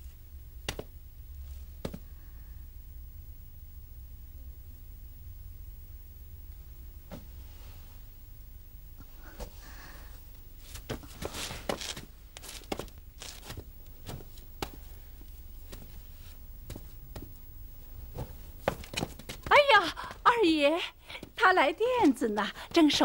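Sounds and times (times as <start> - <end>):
low steady hum: 0.0 - 23.0
soft irregular taps: 0.6 - 0.9, 16.7 - 17.4
cloth rustling: 10.6 - 19.5.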